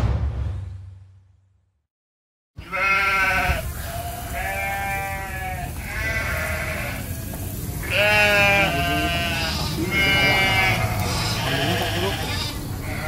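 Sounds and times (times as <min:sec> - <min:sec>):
goat bleating: 0:02.6 - 0:13.0.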